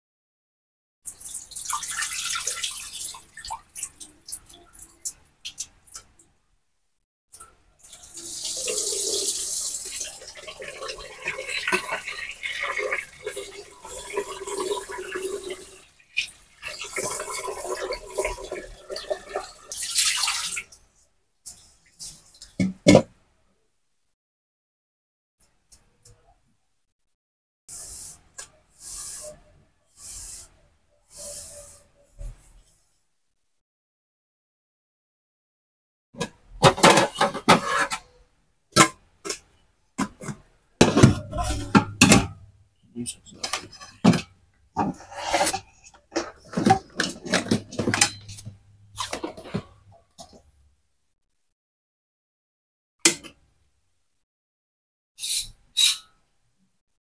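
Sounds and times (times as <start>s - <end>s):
tap water running into pot: 1.1s - 4.9s, 7.8s - 20.6s
metal pot knocking into rice cooker: 40.8s - 42.4s
kitchenware clinking in dish rack: 40.9s - 42.4s, 46.1s - 49.7s.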